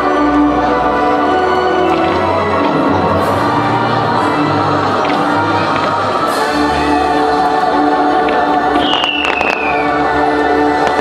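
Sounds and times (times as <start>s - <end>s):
choir holding a chord: 0.0s - 11.0s
firework shells cracking: 8.8s - 9.9s, 10.8s - 11.0s
descending high whistle: 8.8s - 10.0s.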